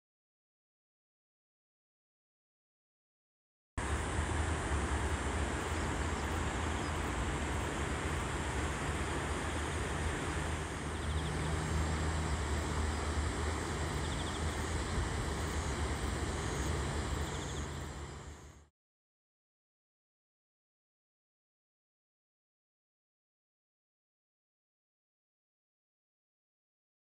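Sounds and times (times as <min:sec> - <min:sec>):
river rushing: 0:03.8 - 0:18.6
low hum: 0:03.8 - 0:18.7.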